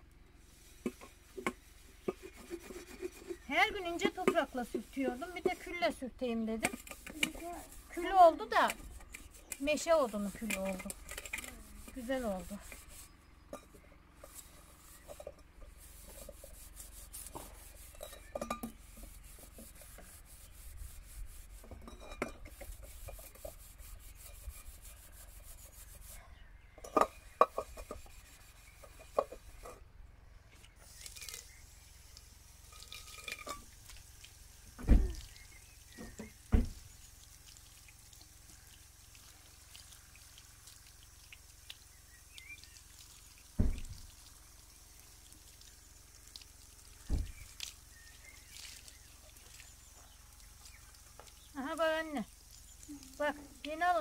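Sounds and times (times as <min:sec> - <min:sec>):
pot being scoured with ash: 0:00.4 - 0:05.9, 0:06.6 - 0:26.3, 0:27.0 - 0:29.8.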